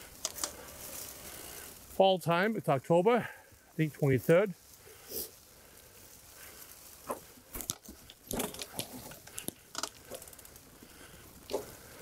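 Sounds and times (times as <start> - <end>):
bike rattling over bumps: 0.0 - 2.3, 5.5 - 12.0
bike tyres crunching leaves: 0.0 - 12.0
small ticks: 0.1 - 1.7, 4.8 - 12.0.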